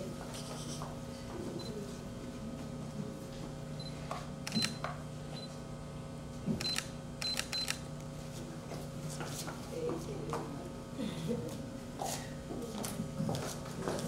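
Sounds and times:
low electrical hum: 0.0 - 14.0
camera focus beeps: 3.8 - 4.8, 6.6 - 7.8
camera shutter clicks: 4.4 - 4.8, 6.6 - 7.9.

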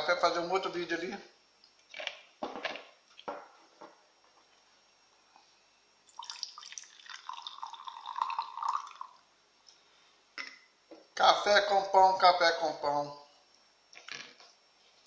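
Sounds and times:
coffee pouring into a cup: 6.1 - 9.2.

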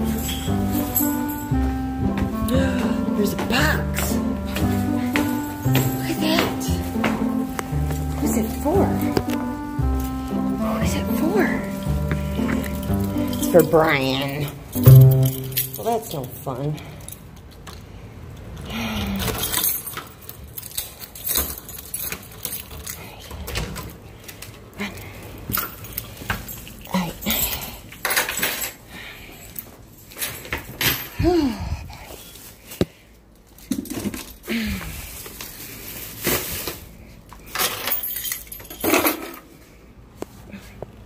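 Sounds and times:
keys jangling: 0.0 - 1.6, 19.2 - 24.4, 25.5 - 31.2, 37.4 - 39.5
bag rustling and crinkling: 34.9 - 37.2.

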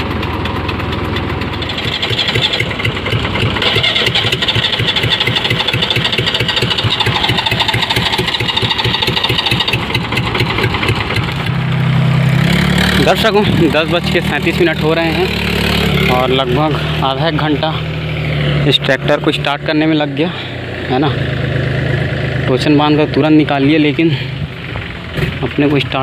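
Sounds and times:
tractor diesel engine starting and running: 0.0 - 26.0.

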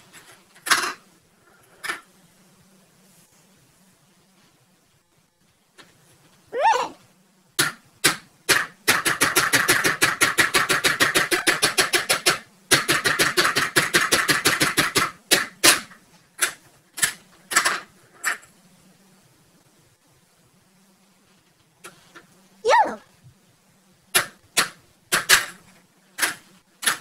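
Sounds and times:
balls rattling down plastic ramps: 0.1 - 1.1, 7.6 - 18.5, 24.2 - 27.0.

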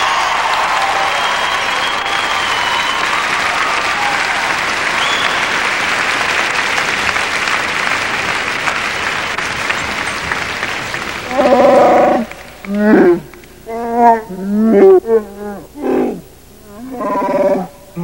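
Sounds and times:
audience applauding: 0.0 - 13.6
loud creature roar: 11.2 - 18.0.

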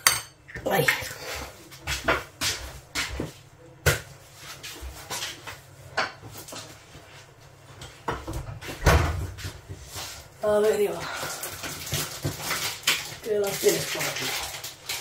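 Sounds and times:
dishes and utensils clinking: 0.0 - 1.1.

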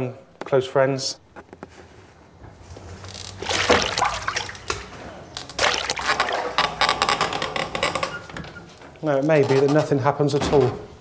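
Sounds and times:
water sloshing and splashing: 3.2 - 7.0.

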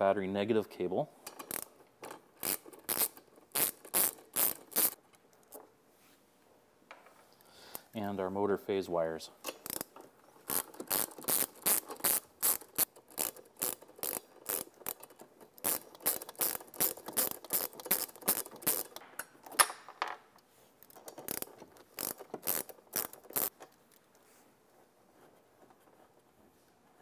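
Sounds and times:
ratchet wrench clicking: 1.3 - 1.7, 2.4 - 5.0, 9.5 - 9.9, 10.5 - 19.0, 20.8 - 23.5.

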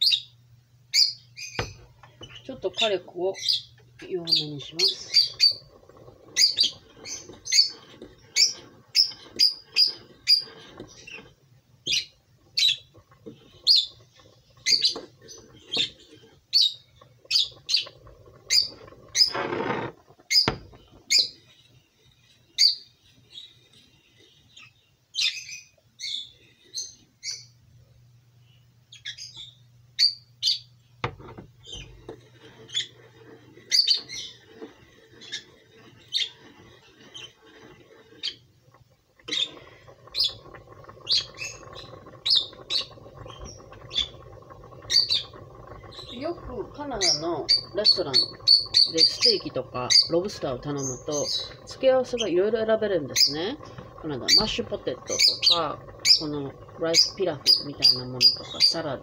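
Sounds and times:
small bird chirping: 0.0 - 19.4, 20.2 - 27.6, 28.4 - 30.8, 33.6 - 34.5, 38.2 - 38.5, 39.2 - 59.0
metal spoon scraping saucepan: 4.0 - 21.3, 31.1 - 59.0.

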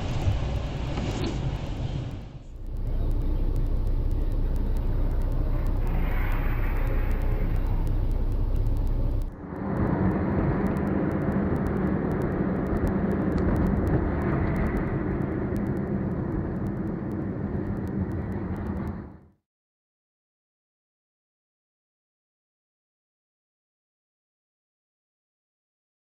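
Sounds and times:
car engine and tyres rumbling: 0.0 - 19.2
faint ticks: 2.6 - 19.2.

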